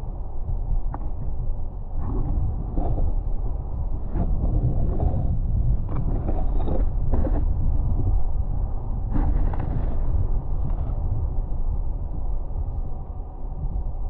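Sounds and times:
muffled underwater rumble: 0.0 - 14.0
camera scraping and knocking: 5.8 - 7.5, 9.1 - 10.9.

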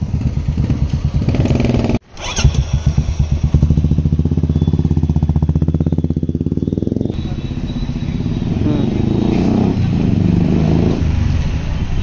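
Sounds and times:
motorcycle engine idling: 0.0 - 9.1.

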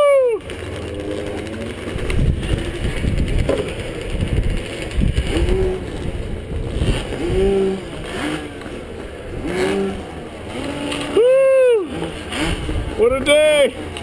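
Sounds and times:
distant motocross bikes revving: 0.0 - 14.0
motorcycle engine rumbling: 0.0 - 14.0.

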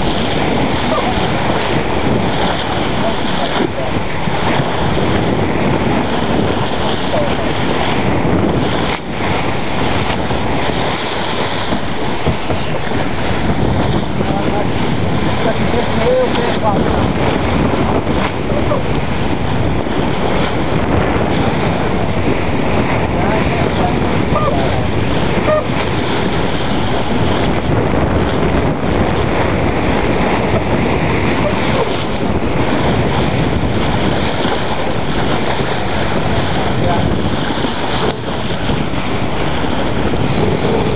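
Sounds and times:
choppy water rushing along hull: 0.0 - 40.9
wind buffeting microphone: 0.0 - 40.9.

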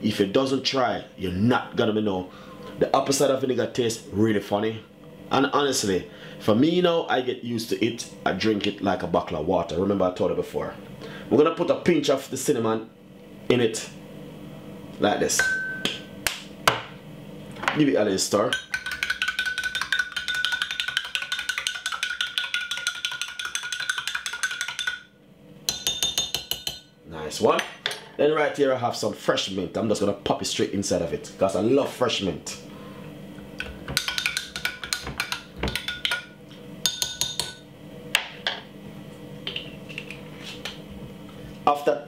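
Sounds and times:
spoon clinking in glass: 25.7 - 26.8, 36.8 - 37.6.

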